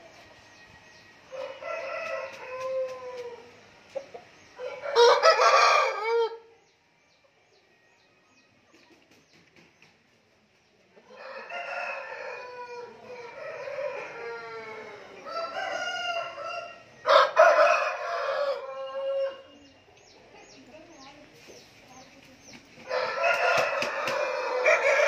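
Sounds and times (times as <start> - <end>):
roosters crowing: 0.9 - 6.5, 11.0 - 19.7, 22.8 - 25.0.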